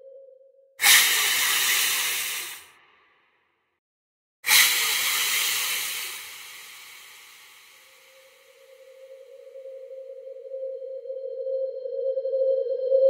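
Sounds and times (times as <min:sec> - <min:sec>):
loud hissing bursts: 0:00.8 - 0:02.7, 0:04.5 - 0:08.5.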